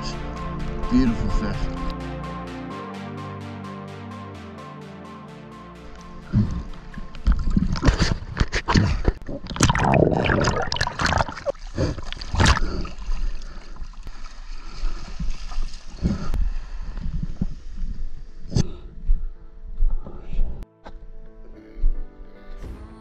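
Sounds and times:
water splashing and gurgling: 6.3s - 16.4s.

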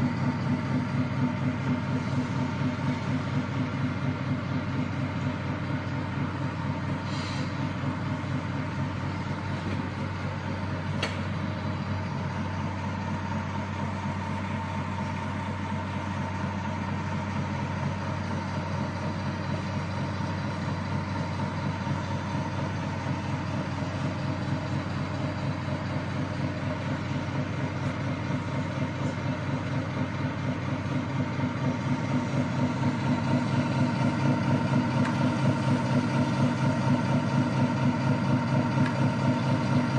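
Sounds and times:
simulated engine idle through speaker: 0.0s - 39.9s.

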